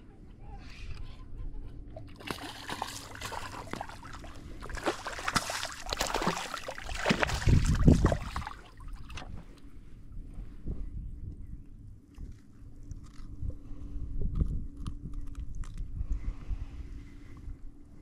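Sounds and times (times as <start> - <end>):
water splashing and sloshing: 1.9 - 9.9.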